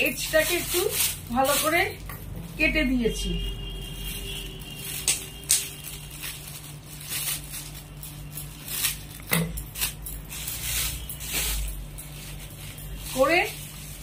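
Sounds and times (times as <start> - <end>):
scissors snipping foil: 0.0 - 2.0, 4.8 - 14.0
foil crinkling: 0.0 - 3.0, 3.7 - 14.0.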